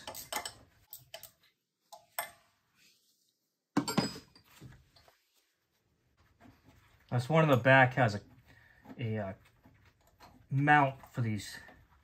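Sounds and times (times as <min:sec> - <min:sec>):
metal tool clinking: 0:00.0 - 0:02.5, 0:03.8 - 0:04.6.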